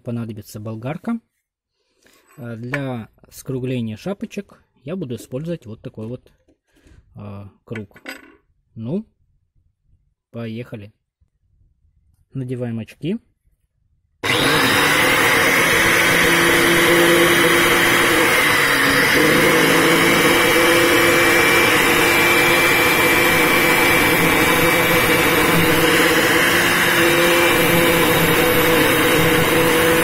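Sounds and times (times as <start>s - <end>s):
angle grinder grinding metal: 14.2s - 30.0s.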